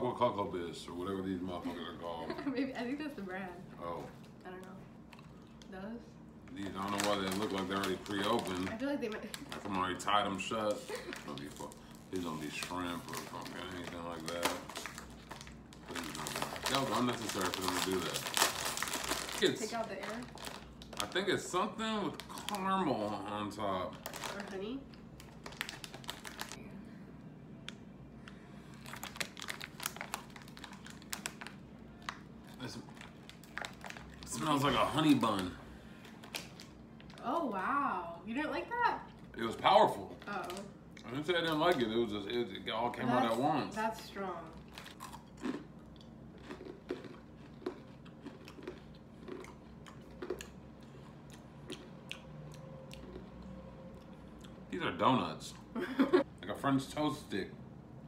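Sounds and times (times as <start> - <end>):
foil snack bag crinkling: 6.5 - 26.6, 28.7 - 37.2.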